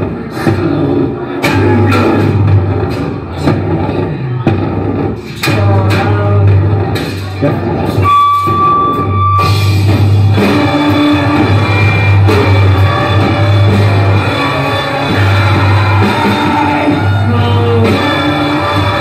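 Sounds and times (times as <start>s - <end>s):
live rock band playing: 8.0s - 19.0s.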